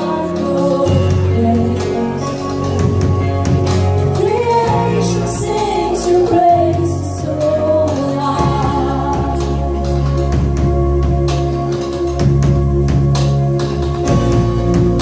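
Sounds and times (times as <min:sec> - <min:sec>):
woman singing: 0:00.0 - 0:02.9, 0:04.1 - 0:09.9
worship band playing: 0:00.0 - 0:15.0.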